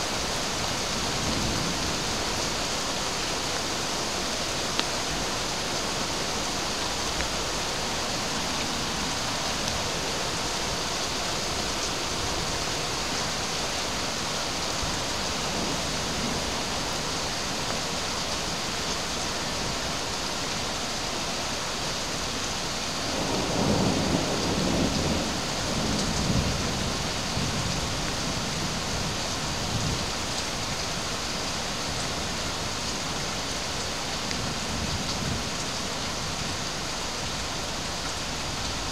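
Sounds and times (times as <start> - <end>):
heavy rain hissing: 0.0 - 38.9
thunder rumbling: 23.0 - 29.1.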